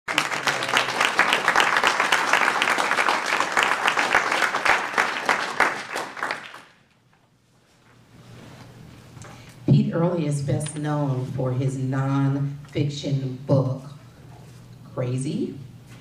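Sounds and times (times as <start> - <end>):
audience applauding: 0.1 - 6.9.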